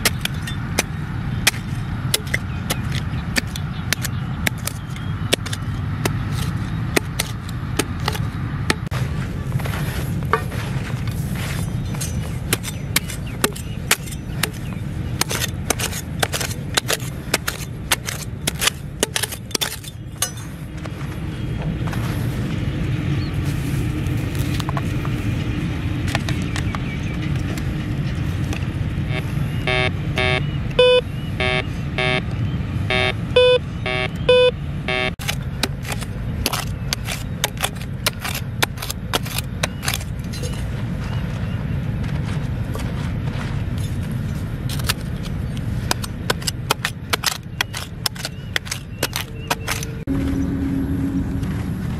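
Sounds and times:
hand scraping stony soil: 0.0 - 21.2, 23.3 - 26.3, 35.2 - 41.5, 42.2 - 50.2
metal detector beeps: 29.0 - 32.3, 32.9 - 35.2.

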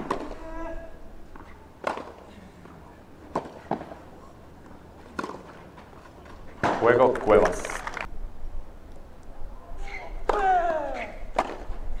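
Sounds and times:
tennis ball struck by rackets: 1.8 - 2.2, 3.3 - 4.0, 5.2 - 5.6, 11.3 - 11.8.

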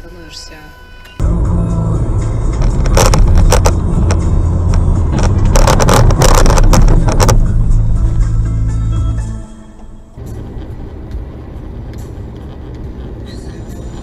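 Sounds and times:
car engine and road noise: 0.0 - 14.0
sharp clicks and rattles: 2.4 - 8.3, 10.2 - 14.0.

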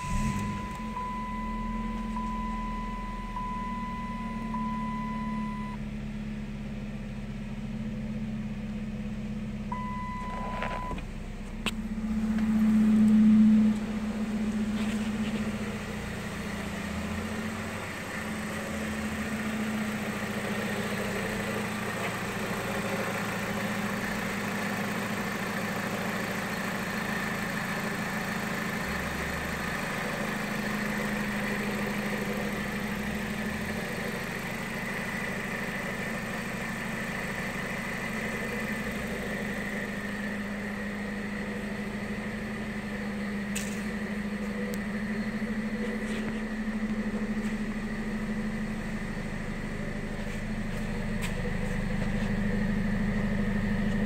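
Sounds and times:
high warning chime: 0.0 - 5.8
car engine idling: 0.0 - 54.0.

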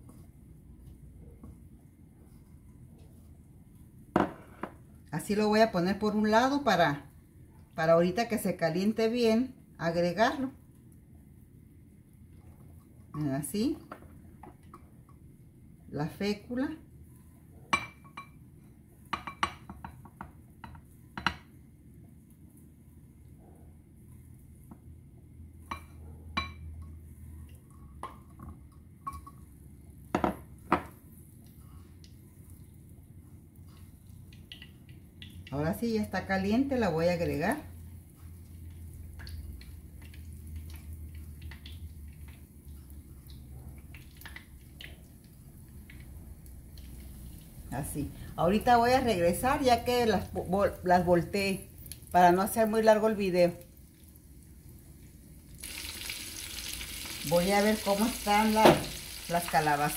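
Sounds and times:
chicken frying in oil: 31.0 - 59.9.

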